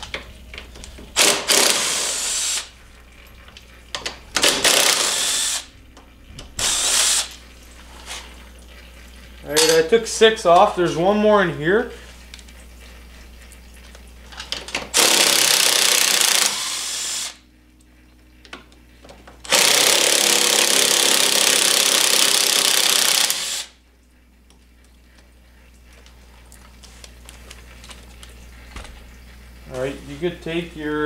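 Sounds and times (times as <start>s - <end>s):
cordless drill spinning: 1.2s - 2.7s, 4.4s - 5.7s, 6.6s - 7.4s, 15.0s - 17.4s, 19.4s - 23.8s.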